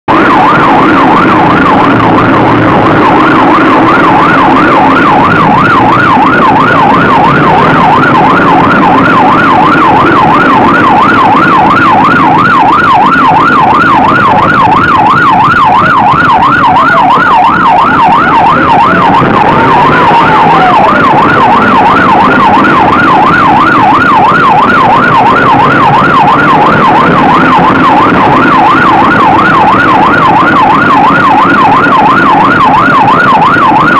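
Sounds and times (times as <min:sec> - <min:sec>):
car engine and road noise: 0:00.1 - 0:33.9
police siren yelping: 0:00.1 - 0:33.9.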